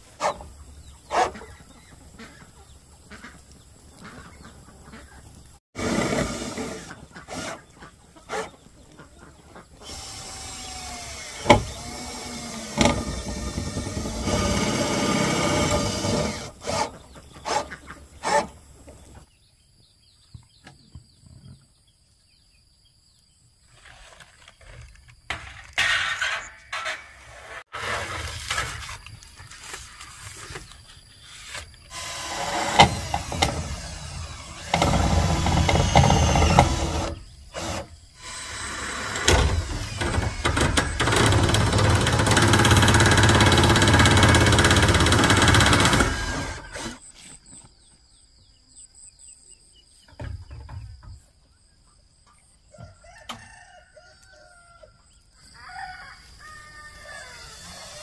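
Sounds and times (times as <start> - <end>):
cordless drill driving screws into metal: 9.9 - 17.6, 31.9 - 47.0
rooster crowing: 52.7 - 57.7.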